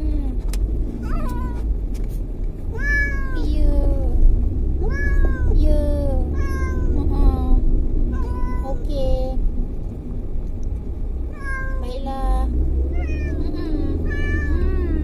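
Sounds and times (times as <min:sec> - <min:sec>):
moving car rumble: 0:00.0 - 0:15.0
cat meowing: 0:01.0 - 0:01.6, 0:02.7 - 0:03.5, 0:04.8 - 0:05.6, 0:06.3 - 0:07.0, 0:08.1 - 0:08.8, 0:11.3 - 0:11.8, 0:12.9 - 0:15.0.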